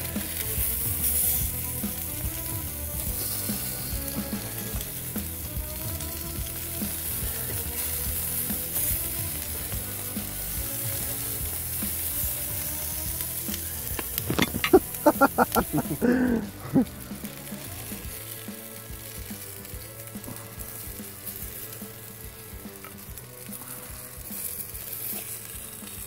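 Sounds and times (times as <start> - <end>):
meat sizzling on a grill: 0.0 - 26.0
metal tongs turning food: 10.1 - 17.6.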